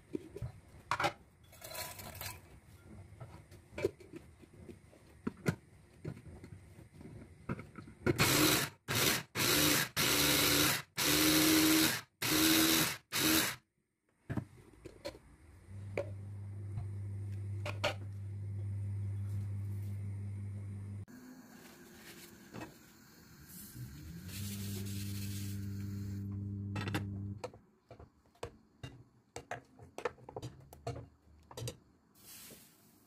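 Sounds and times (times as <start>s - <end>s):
electric chopper grinding nuts: 8.2s - 13.6s, 23.5s - 27.4s
low steady hum: 15.4s - 21.8s.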